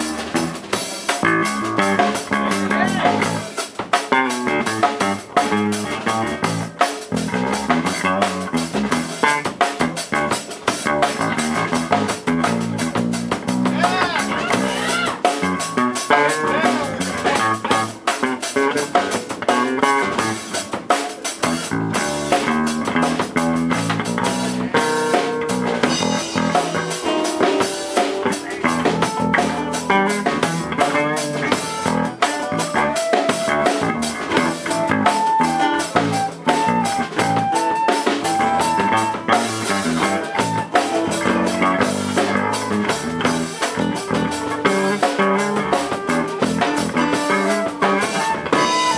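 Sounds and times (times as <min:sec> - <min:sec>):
drum kit: 0:00.0 - 0:48.9
electric bass: 0:00.0 - 0:48.9
guitar: 0:00.0 - 0:48.9
lead melody of held notes: 0:21.7 - 0:48.9.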